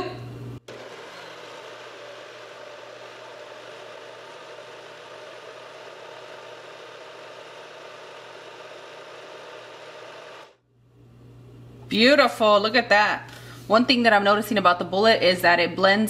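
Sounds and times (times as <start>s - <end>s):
blender motor running: 0.6s - 10.6s.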